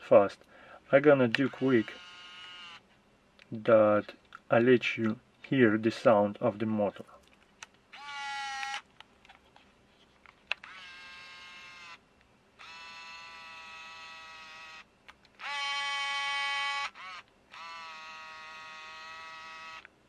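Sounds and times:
camera motor whining: 0:01.3 - 0:02.8, 0:07.9 - 0:08.8, 0:10.6 - 0:12.0, 0:12.6 - 0:19.9.

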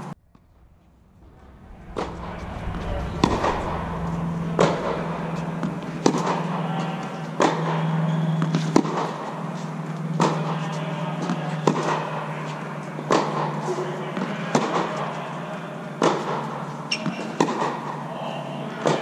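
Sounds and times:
steady low hum: 0:00.0 - 0:19.0
tennis ball struck by racket: 0:04.6 - 0:18.1.

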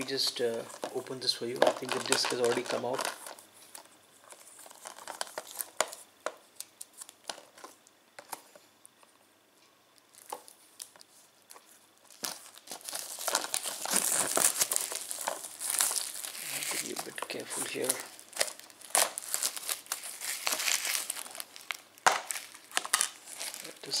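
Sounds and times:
plastic wrap crinkling: 0:00.0 - 0:08.6, 0:10.1 - 0:24.0.

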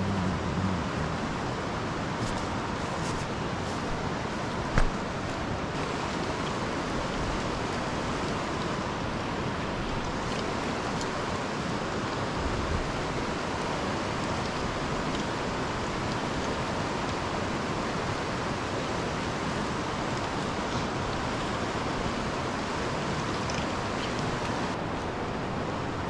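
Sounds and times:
river water rushing over rocks: 0:00.0 - 0:26.0.

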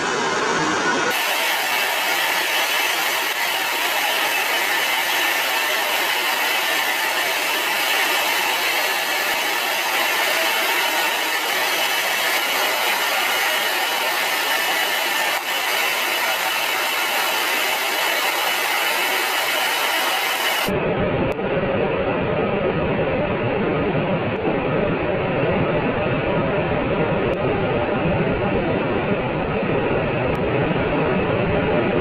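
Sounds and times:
jet aircraft rushing hiss: 0:00.0 - 0:20.7.

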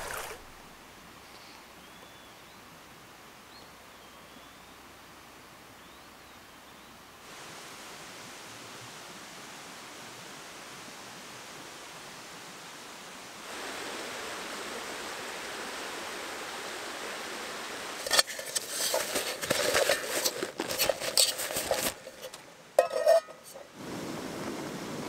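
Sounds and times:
metal camp stove gear clinking: 0:18.0 - 0:23.7.

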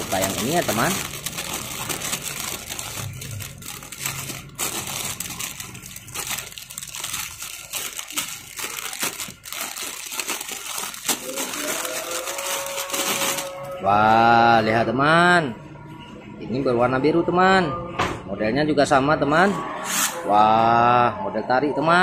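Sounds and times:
plastic bag crinkling: 0:00.0 - 0:13.8.

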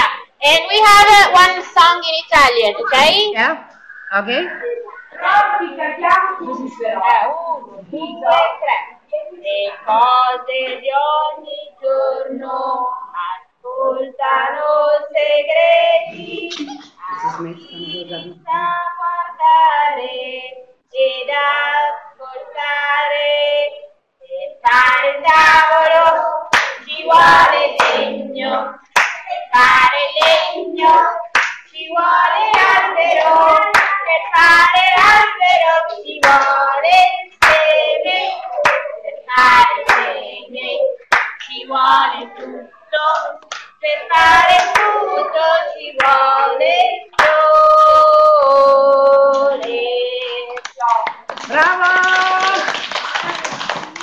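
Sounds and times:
children singing together: 0:03.9 - 0:54.0
hand claps: 0:26.5 - 0:26.8, 0:28.9 - 0:29.3, 0:31.3 - 0:31.7, 0:32.5 - 0:34.0, 0:36.2 - 0:36.6, 0:37.4 - 0:37.7, 0:38.6 - 0:38.9, 0:41.1 - 0:41.5, 0:43.2 - 0:43.8, 0:48.4 - 0:54.0.

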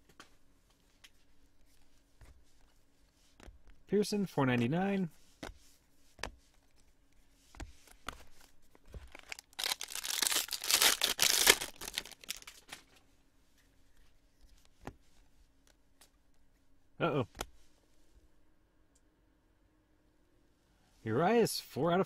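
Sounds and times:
foil wrapper tearing and crinkling: 0:08.9 - 0:12.7.

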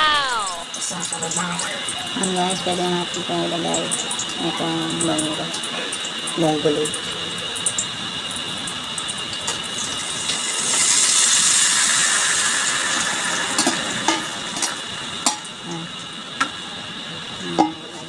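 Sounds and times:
food sizzling in hot oil: 0:00.0 - 0:18.0
utensil clinking against pot: 0:17.4 - 0:18.0.

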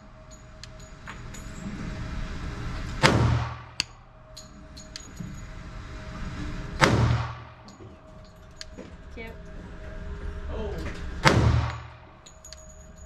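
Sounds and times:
pistol shots: 0:03.0 - 0:03.8, 0:06.8 - 0:07.5, 0:11.2 - 0:12.0.

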